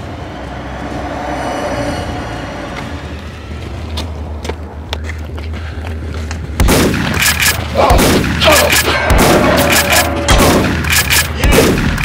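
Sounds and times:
gunfire with booming blasts: 0:06.6 - 0:12.0.

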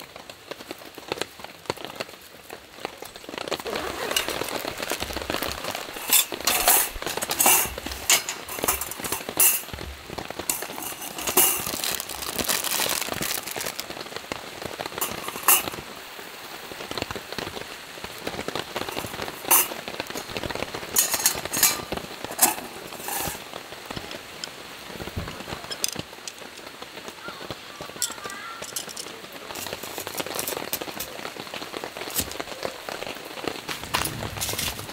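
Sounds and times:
rain pattering on a tarp: 0:00.0 - 0:34.9
camping gear clicking and clinking: 0:02.8 - 0:14.0, 0:14.8 - 0:15.9, 0:18.2 - 0:26.7, 0:28.0 - 0:32.7, 0:33.7 - 0:34.9.

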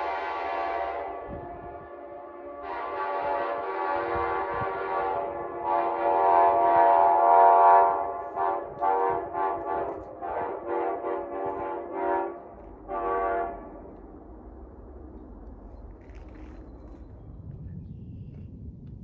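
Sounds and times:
train air horn blasts: 0:00.0 - 0:14.0.

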